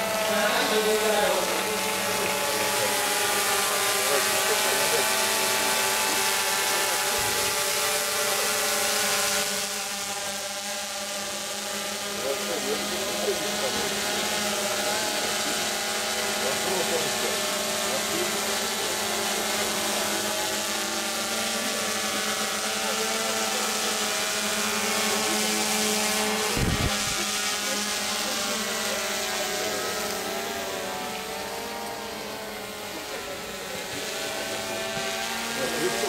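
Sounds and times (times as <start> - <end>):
motor engine droning: 0.0 - 36.0.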